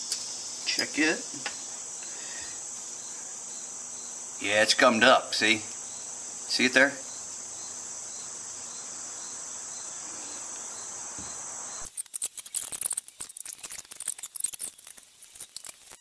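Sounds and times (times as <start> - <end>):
crickets trilling: 0.0 - 16.0
small parts clicking and rattling: 11.8 - 16.0.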